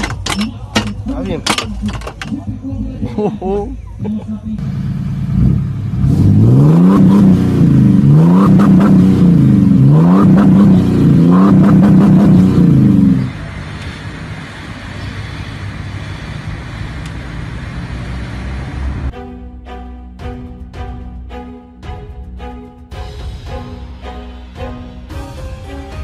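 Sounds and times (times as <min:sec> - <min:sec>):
engine revving hard: 0:04.6 - 0:14.3.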